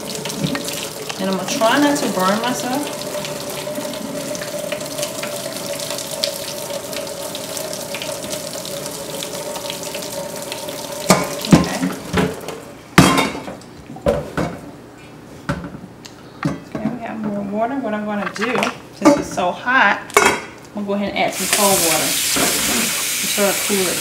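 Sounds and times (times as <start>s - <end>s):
water pouring into steel sink: 0.0s - 12.4s, 21.4s - 24.0s.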